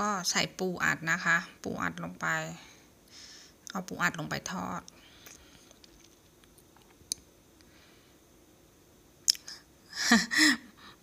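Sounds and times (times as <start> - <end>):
woman speaking: 0.0 - 2.7, 3.7 - 4.9.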